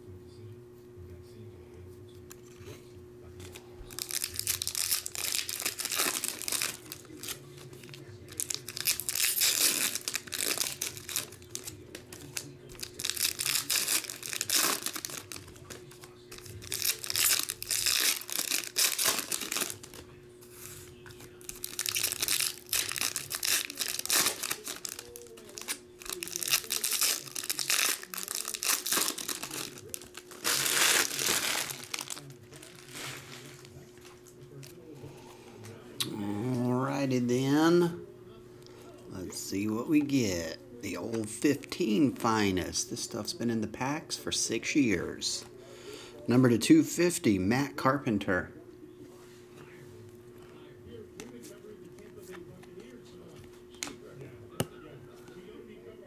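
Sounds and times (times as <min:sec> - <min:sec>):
faint steady hum: 0:00.0 - 0:56.0
foil wrappers tearing and crinkling: 0:03.9 - 0:34.8.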